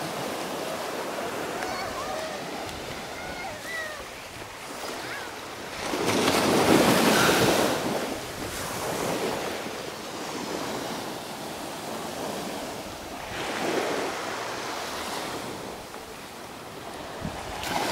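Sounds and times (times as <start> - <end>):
small waves washing onto beach: 0.0 - 17.9
wind buffeting microphone: 16.8 - 17.9.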